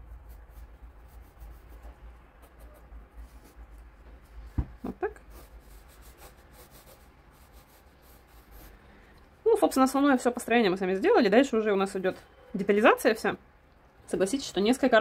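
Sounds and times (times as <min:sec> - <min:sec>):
pencil scratching on paper: 0:00.0 - 0:03.8, 0:05.2 - 0:08.8
low steady hum: 0:00.0 - 0:15.0.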